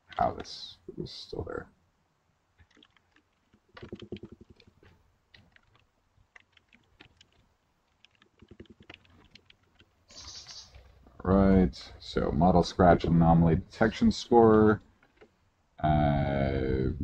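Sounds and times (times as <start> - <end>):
computer keyboard typing: 2.6 - 10.4.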